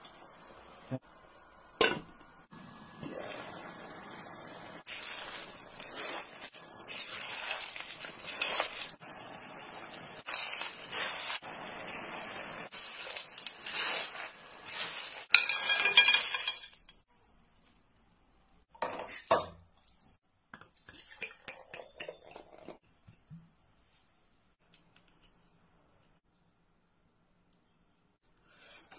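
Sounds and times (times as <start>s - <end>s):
shells clattering in a pan: 14.8s - 17.0s.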